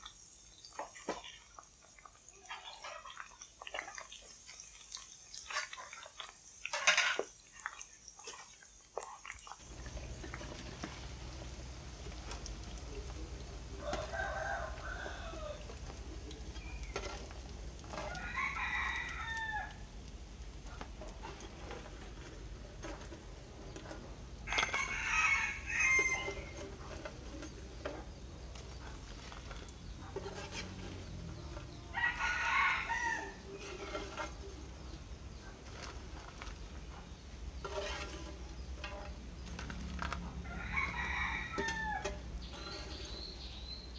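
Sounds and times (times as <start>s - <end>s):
rooster crowing: 13.7s - 15.8s, 18.0s - 19.9s, 24.4s - 26.7s, 31.7s - 33.8s, 40.3s - 43.0s.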